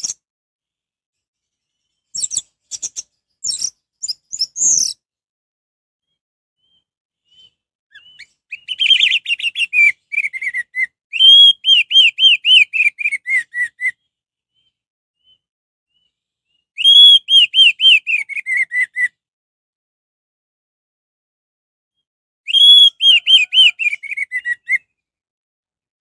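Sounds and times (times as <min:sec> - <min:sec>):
thrush singing whistled notes: 0:01.8 - 0:05.0, 0:06.1 - 0:19.2, 0:22.5 - 0:25.0.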